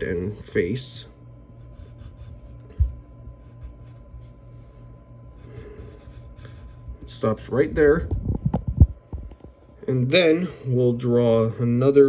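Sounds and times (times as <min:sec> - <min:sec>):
low electrical hum: 0:00.0 - 0:12.0
pencil sketching on paper: 0:01.6 - 0:04.5, 0:05.4 - 0:07.2.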